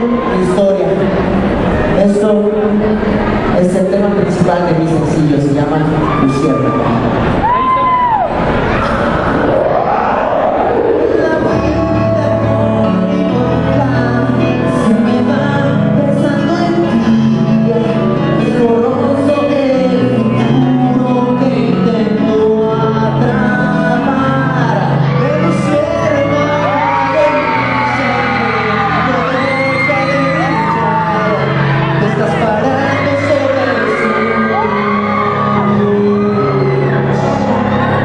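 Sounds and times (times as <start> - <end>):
loud backing music: 0.0 - 38.0
person singing into microphone: 10.5 - 38.0.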